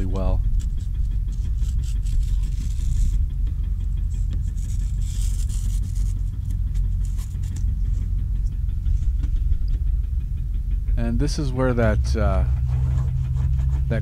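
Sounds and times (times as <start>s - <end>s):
steady low rumble: 0.0s - 14.0s
razor blade scraping foam: 0.6s - 3.2s, 4.1s - 7.7s, 12.7s - 14.0s.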